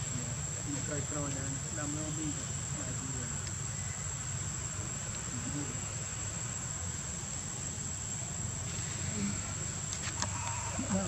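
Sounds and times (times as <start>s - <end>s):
insects shrilling: 0.0s - 11.0s.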